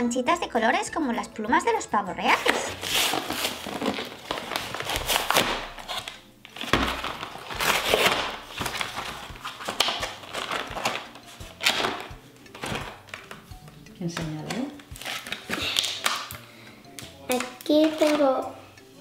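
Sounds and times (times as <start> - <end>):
paper tearing: 2.3 - 12.0, 15.0 - 16.2
paper packaging rustling: 2.3 - 13.5, 14.7 - 16.3.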